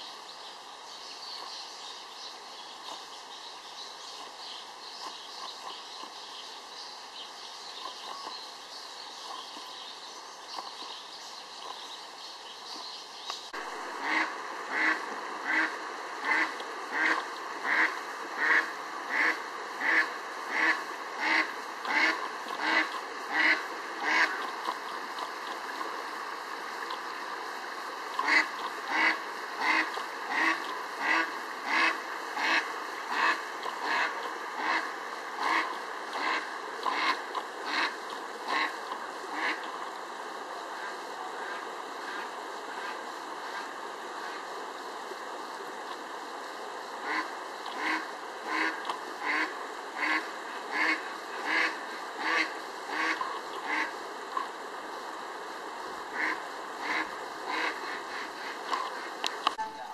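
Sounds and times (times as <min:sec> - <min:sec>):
mountain stream running: 0:00.0 - 0:59.9
duck quacking: 0:14.0 - 0:24.5, 0:28.2 - 0:39.8, 0:47.0 - 0:54.0, 0:56.2 - 0:58.4.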